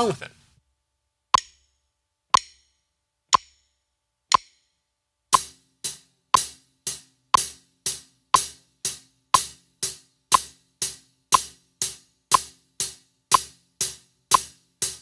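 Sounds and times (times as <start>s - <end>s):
metronome clicking: 1.3s - 15.0s
hi-hat struck with drumstick: 5.3s - 15.0s.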